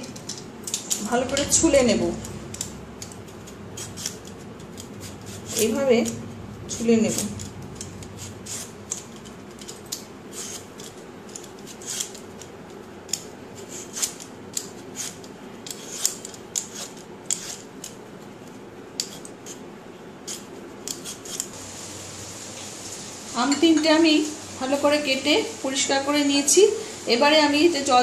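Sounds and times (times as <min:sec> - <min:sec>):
vegetable peeler scraping mango skin: 0:00.7 - 0:18.0, 0:19.0 - 0:21.6.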